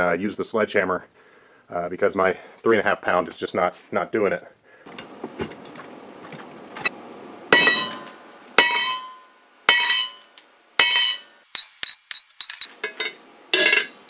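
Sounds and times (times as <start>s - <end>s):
sledgehammer striking hot metal: 7.5s - 12.7s.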